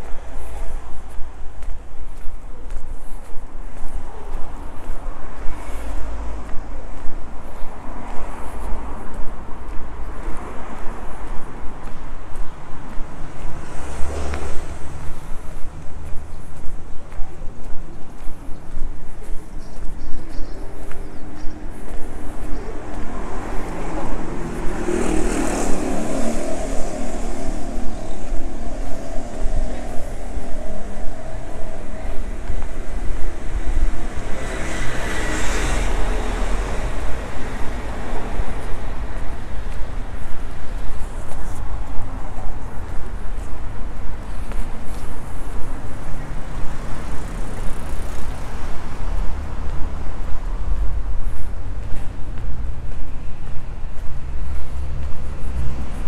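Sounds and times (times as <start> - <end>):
car passing: 3.8 - 56.0
low rumble: 22.2 - 44.0
car driving past: 22.6 - 39.7.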